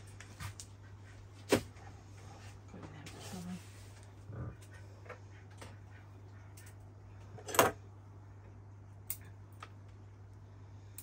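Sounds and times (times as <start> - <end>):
steady low hum: 0.0 - 11.0
small tool and wire clicks: 9.0 - 9.8.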